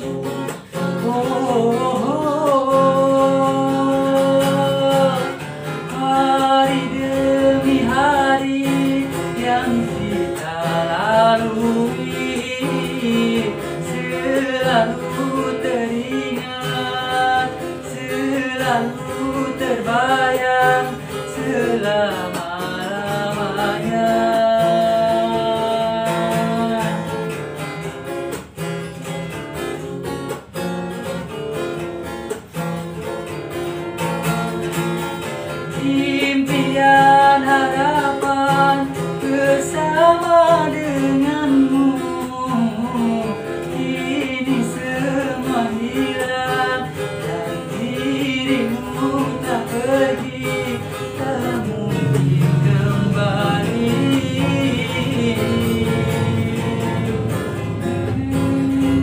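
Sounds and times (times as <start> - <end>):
man singing: 0.0 - 32.5, 33.2 - 59.0
strummed acoustic guitar: 0.0 - 59.0.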